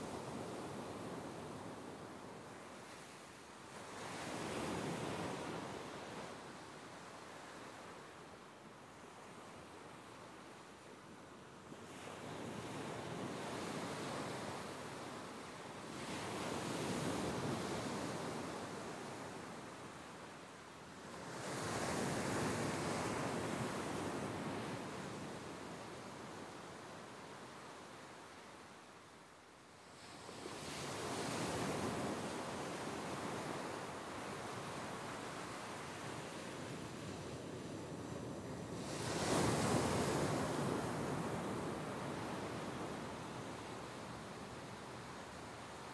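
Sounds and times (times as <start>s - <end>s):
ocean surf on beach: 11.8s - 45.9s.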